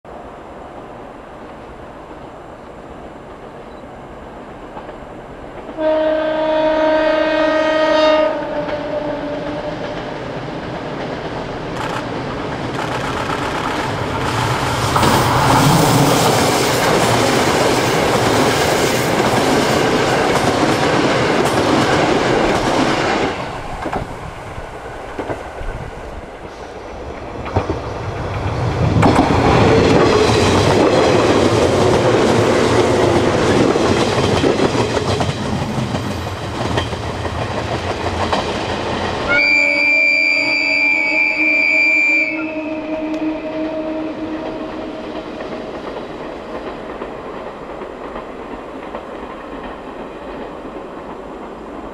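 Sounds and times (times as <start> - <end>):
train horn: 5.7 - 10.0, 39.3 - 45.7
electric train wheels clacking: 8.5 - 39.4, 43.1 - 51.9.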